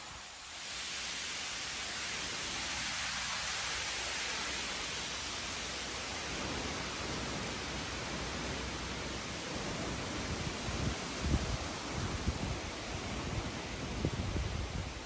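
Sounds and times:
wind rushing through treetops: 0.0s - 15.0s
wind buffeting on microphone: 6.3s - 15.0s.

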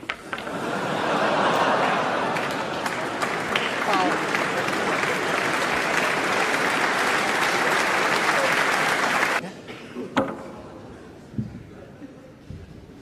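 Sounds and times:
audience applauding: 0.3s - 9.4s.

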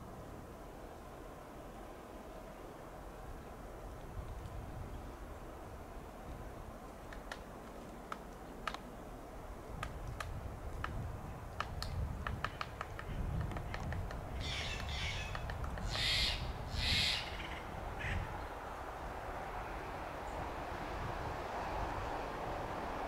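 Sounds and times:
jay giving harsh grating calls: 15.9s - 17.4s.

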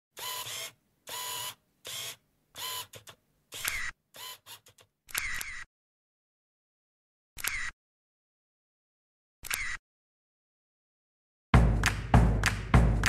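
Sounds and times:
camera shutter firing: 3.6s - 4.4s.

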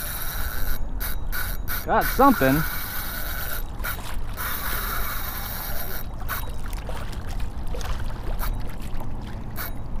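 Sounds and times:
fishing reel drag buzzing: 0.0s - 6.7s, 8.3s - 8.7s, 9.5s - 10.0s
water slapping against kayak hull: 6.1s - 9.4s.

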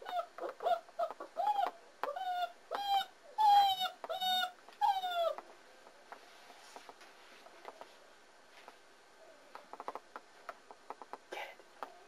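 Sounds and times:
puppy whining: 0.0s - 5.4s.

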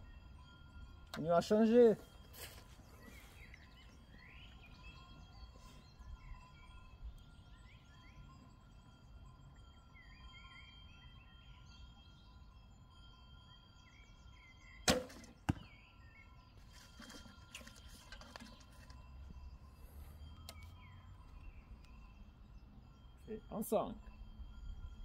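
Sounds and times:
birds chirping: 0.0s - 25.0s
arrow striking target: 14.8s - 15.7s
arrow handling clicks and rustles: 16.6s - 19.0s.

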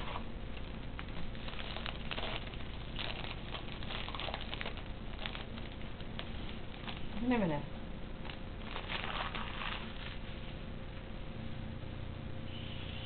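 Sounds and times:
foil wrapper crinkling: 0.0s - 7.4s, 8.2s - 10.5s.

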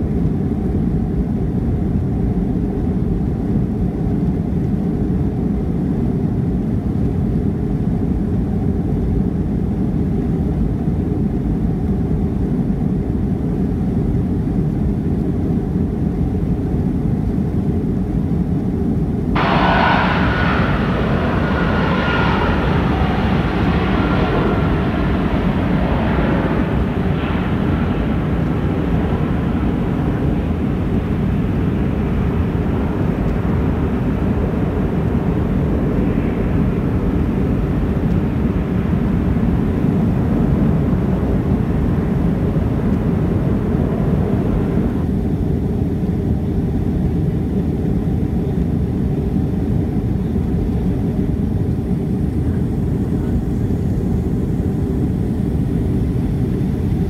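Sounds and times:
jet engines deep rumble: 0.0s - 57.0s
high jet noise: 19.4s - 45.1s.

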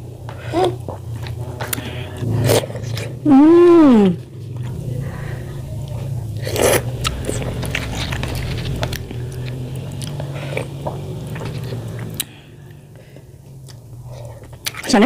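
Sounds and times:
low steady hum: 0.0s - 15.0s
chewing: 13.4s - 14.9s.

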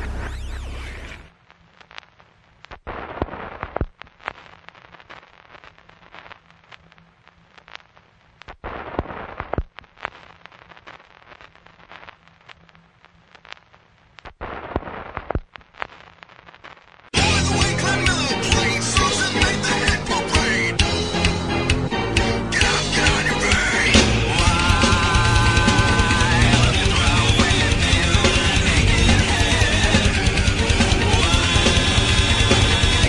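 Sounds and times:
sharp pops and crackling: 0.1s - 17.2s
background music: 17.2s - 33.0s.

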